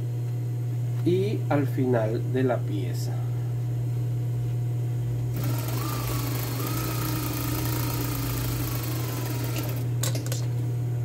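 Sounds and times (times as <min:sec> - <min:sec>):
steady low hum: 0:00.0 - 0:11.0
sewing machine stitching: 0:05.4 - 0:10.0.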